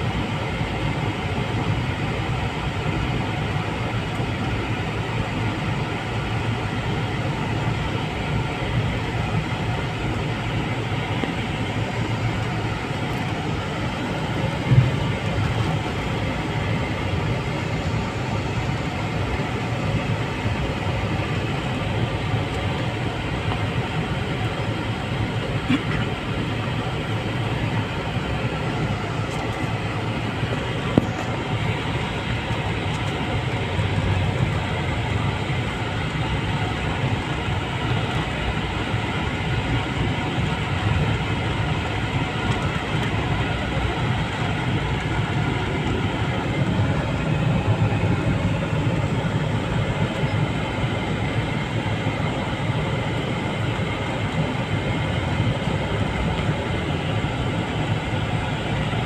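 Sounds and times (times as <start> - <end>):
vehicle engine and tyres rumbling: 0.0 - 59.0.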